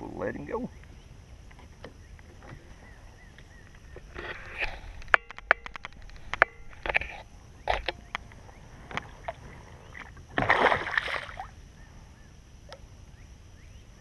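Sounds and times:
loud water splash: 10.4 - 11.5.

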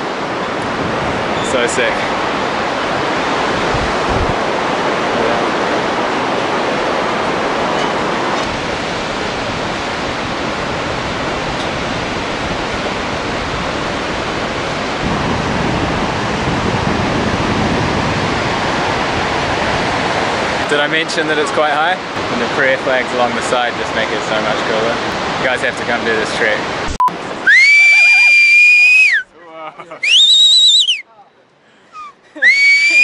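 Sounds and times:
wind rumbling on microphone: 0.0 - 20.7
river rushing: 0.0 - 29.2, 31.8 - 33.0.

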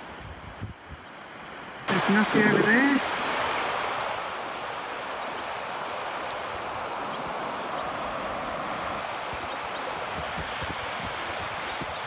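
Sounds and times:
small waves washing onto shore: 0.0 - 12.0
wind: 0.0 - 12.0.

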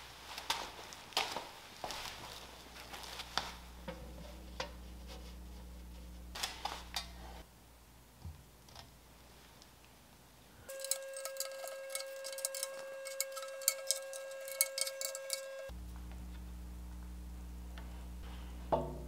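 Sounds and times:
steady hum: 2.6 - 8.6, 10.5 - 19.0.

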